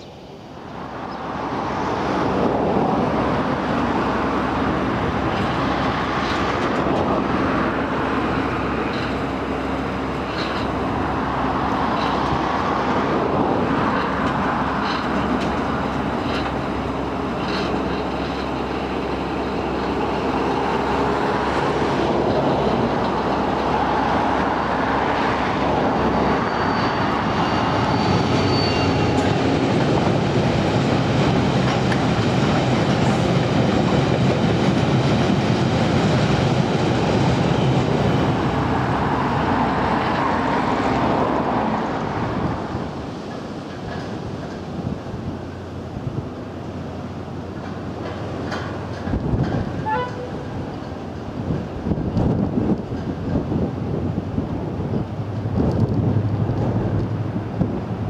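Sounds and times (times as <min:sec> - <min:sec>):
diesel locomotive passing: 0:00.0 - 0:58.0
wheel squeal: 0:26.1 - 0:29.4, 0:49.8 - 0:50.6.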